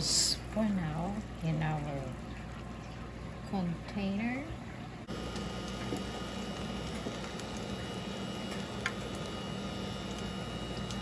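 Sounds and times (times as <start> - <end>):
electrical hum: 0.0 - 11.0.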